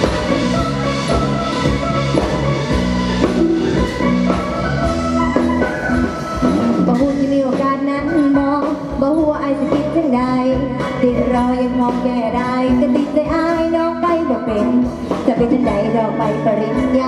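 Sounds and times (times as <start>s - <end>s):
folk band with wooden xylophone: 0.0s - 9.0s
woman singing: 6.9s - 17.0s.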